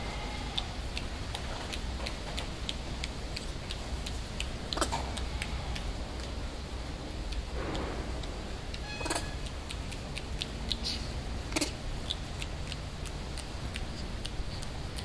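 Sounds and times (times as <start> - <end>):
rustle: 0.0 - 15.0
steady low hum: 0.0 - 15.0
wire cage clicking and ticking: 0.0 - 15.0
sharp knocks: 7.6 - 8.4.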